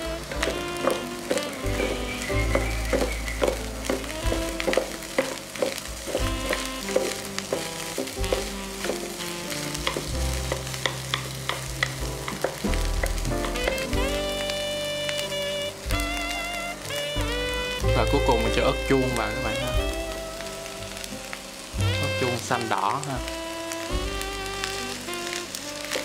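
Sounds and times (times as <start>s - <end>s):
spatula scraping and tapping pan: 0.0s - 13.9s
rice sizzling in frying pan: 0.0s - 26.0s.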